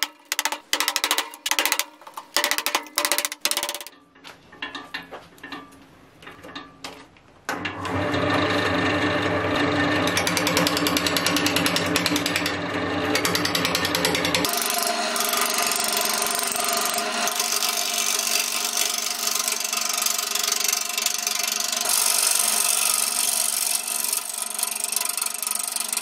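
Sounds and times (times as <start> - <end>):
fast regular rattle: 0.0 - 4.9, 10.0 - 26.0
wood lathe humming: 7.7 - 26.0
mallet striking steel chisel: 10.1 - 12.6, 13.2 - 17.8.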